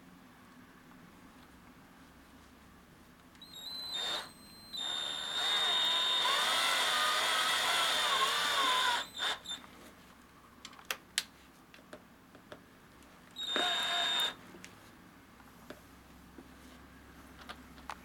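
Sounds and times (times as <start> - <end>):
cordless drill whining: 3.4 - 9.6, 13.4 - 14.4.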